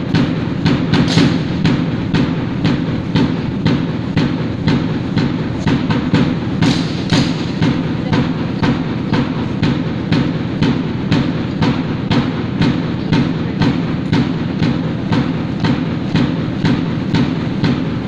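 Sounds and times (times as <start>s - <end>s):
sharp marching beat: 0.0s - 18.0s.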